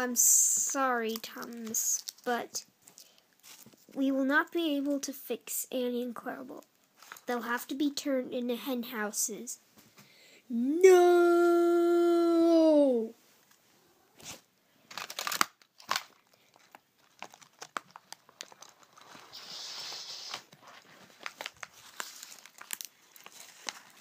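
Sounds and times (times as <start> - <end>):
rustling and crinkling: 0.6 - 4.0, 6.5 - 7.4, 14.2 - 24.0.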